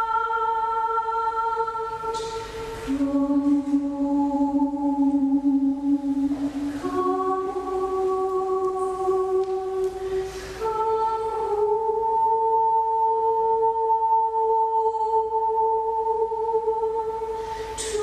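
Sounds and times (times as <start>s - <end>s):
breathy inhale: 10.0s - 10.6s, 17.3s - 17.8s.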